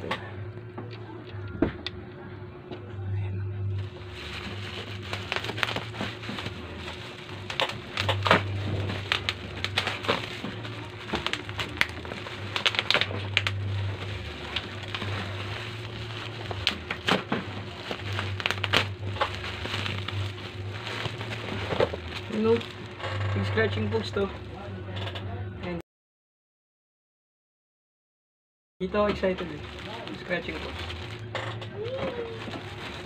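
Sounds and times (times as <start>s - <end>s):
low hum: 0.0s - 25.8s, 29.1s - 33.0s
bubble wrap crinkling and crackling: 3.8s - 24.7s, 28.9s - 33.0s.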